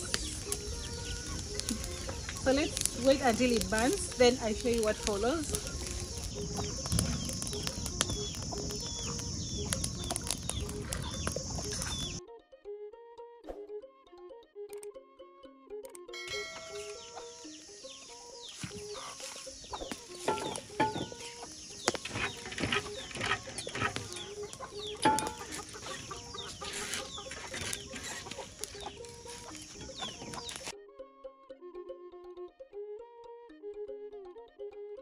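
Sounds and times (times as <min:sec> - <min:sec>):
chickens clucking: 0:00.0 - 0:12.2, 0:16.3 - 0:30.7
dry grass fire crackling: 0:00.0 - 0:12.2, 0:16.3 - 0:30.7
soft background music: 0:00.0 - 0:35.0.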